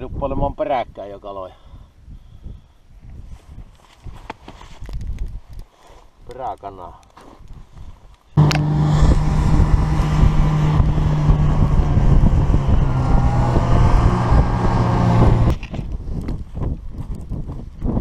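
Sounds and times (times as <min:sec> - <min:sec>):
snowmobile engine running: 0:08.4 - 0:15.6.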